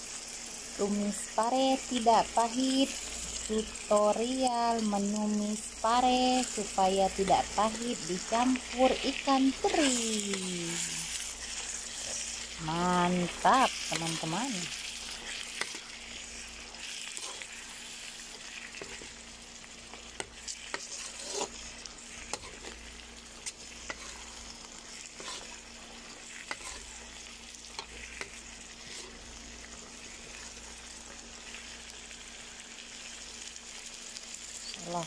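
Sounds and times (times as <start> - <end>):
stir-fry sizzling in a wok: 0.0 - 35.0
metal spatula scraping pan: 20.3 - 22.9, 23.8 - 25.6, 26.4 - 27.1.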